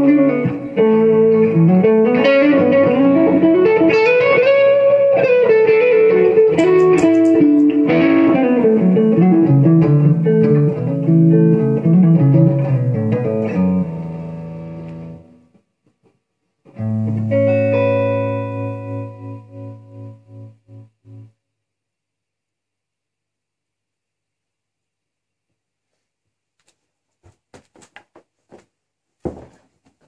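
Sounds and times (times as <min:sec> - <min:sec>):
guitar chord ringing: 0:00.0 - 0:15.3, 0:16.8 - 0:21.4
electric guitar playing: 0:00.0 - 0:15.5, 0:16.7 - 0:21.4.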